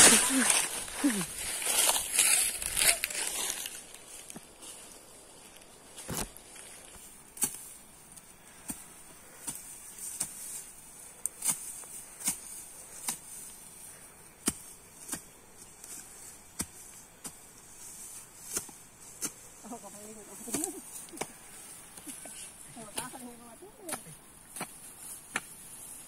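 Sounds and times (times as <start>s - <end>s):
hoe chopping into dry soil: 7.4s - 7.8s, 8.6s - 10.7s, 11.3s - 13.6s, 14.4s - 19.5s, 23.9s - 25.8s.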